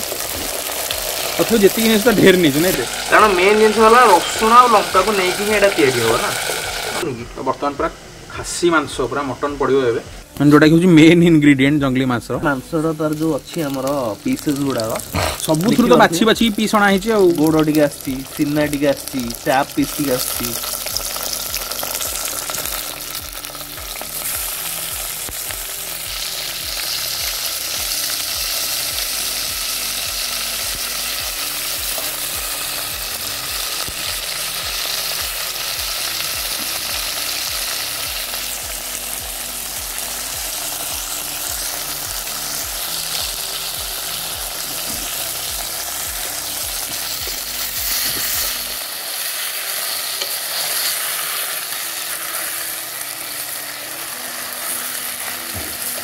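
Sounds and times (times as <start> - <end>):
meat sizzling in fat: 0.0 - 56.0.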